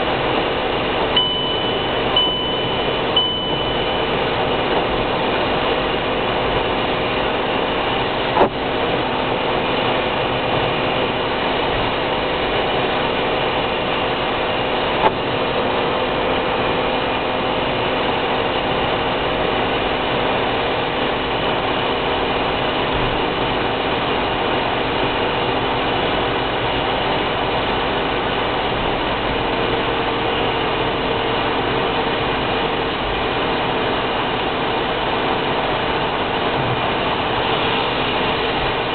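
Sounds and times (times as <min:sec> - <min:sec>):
car cabin road and engine noise: 0:00.0 - 0:38.9
tyres on wet road: 0:28.0 - 0:38.9.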